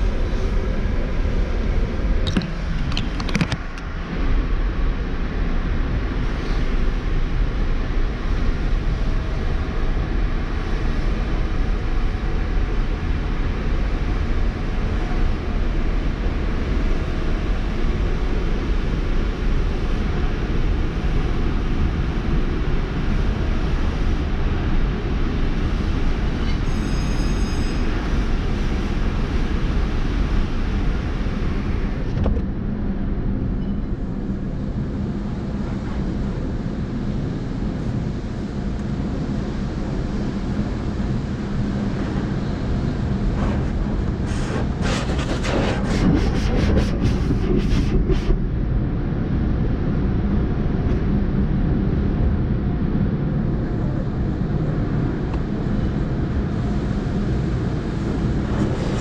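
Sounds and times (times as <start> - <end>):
car wash rumble: 34.2 - 59.0.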